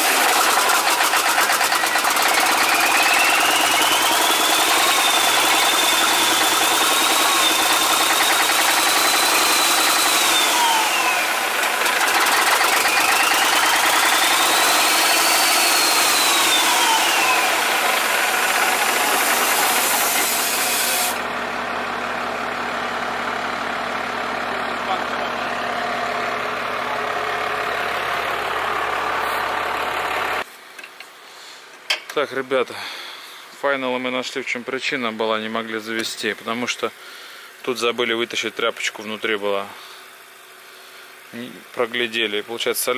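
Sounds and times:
diesel engine cranking: 0.0 - 30.4
starter whine: 0.0 - 30.5.

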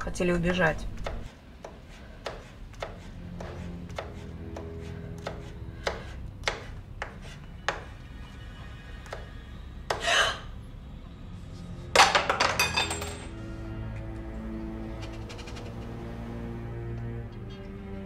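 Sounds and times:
knife chopping on cutting board: 1.0 - 7.9
scraping rasp: 1.2 - 7.9.

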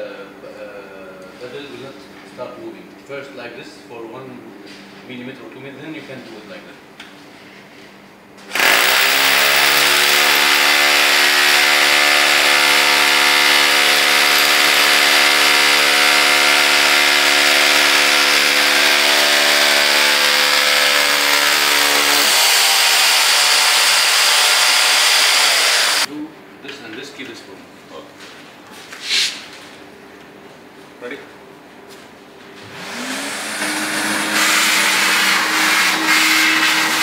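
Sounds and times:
hammer drill boring into concrete: 8.5 - 26.1.

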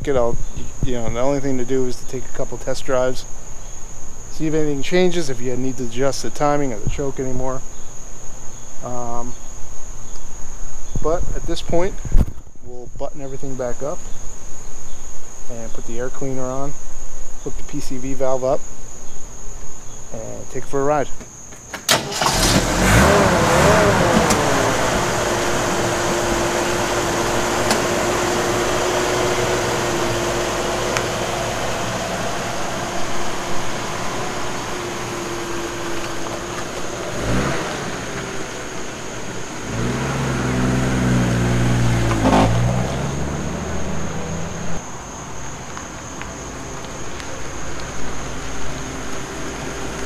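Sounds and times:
car engine driving away: 21.9 - 50.0.

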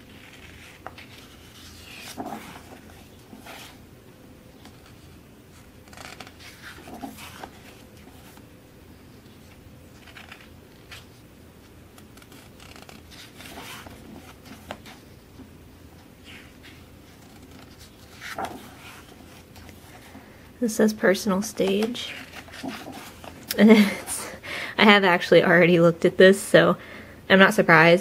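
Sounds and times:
pages rustling and turning: 0.0 - 3.8, 4.6 - 8.5, 9.2 - 20.3, 21.2 - 23.9.

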